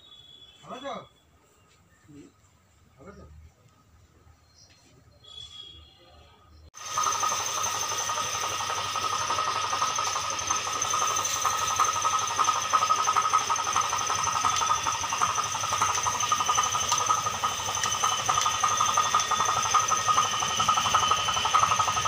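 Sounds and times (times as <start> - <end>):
machine droning with high whine: 6.8 - 22.0.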